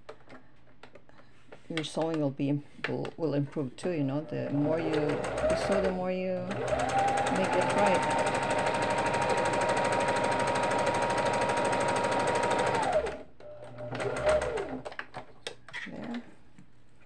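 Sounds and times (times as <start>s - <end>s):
sewing machine stitching: 4.4s - 14.9s.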